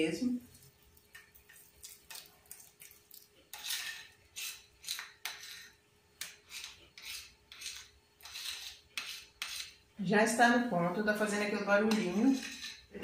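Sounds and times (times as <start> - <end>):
spoon scraping a plate: 3.5 - 9.8, 11.8 - 13.0.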